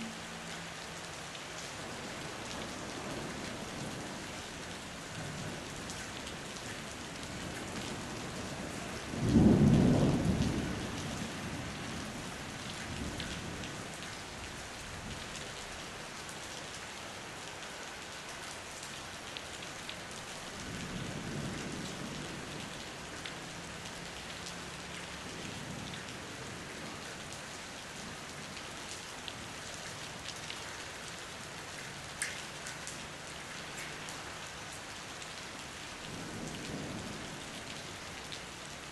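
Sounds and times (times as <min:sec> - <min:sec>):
heavy rain on street: 0:00.0 - 0:38.9
thunder clap and rumble: 0:09.1 - 0:11.2.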